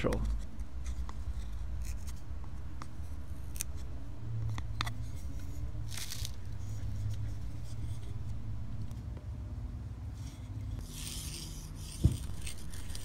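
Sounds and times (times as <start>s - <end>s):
knife shaving wood: 10.3s - 13.0s.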